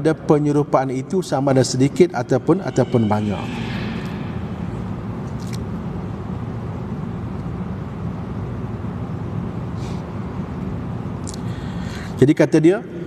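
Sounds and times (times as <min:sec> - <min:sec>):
low rumble: 0:00.6 - 0:06.9.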